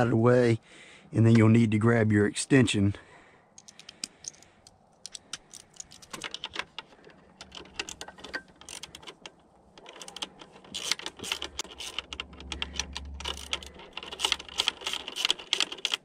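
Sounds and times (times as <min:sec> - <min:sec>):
ratchet wrench clicking: 0:07.4 - 0:09.2, 0:09.8 - 0:16.0.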